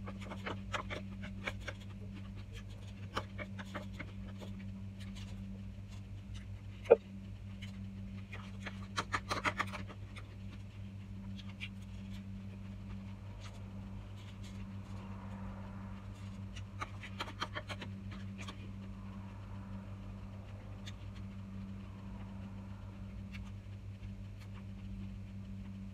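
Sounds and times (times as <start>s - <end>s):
steady low hum: 0.0s - 25.9s.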